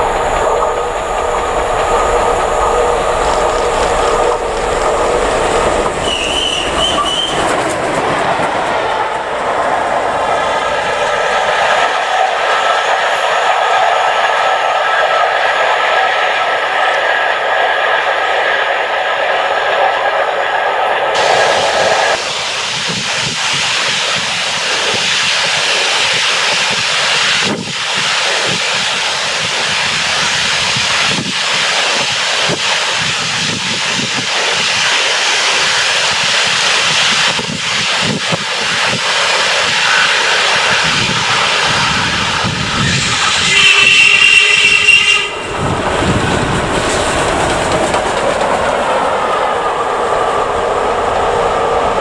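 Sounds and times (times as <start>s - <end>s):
high ringing from train: 0.0s - 7.6s, 41.8s - 46.2s
steam locomotive exhaust: 0.0s - 9.5s, 20.8s - 52.0s
steam locomotive moving: 0.0s - 52.0s.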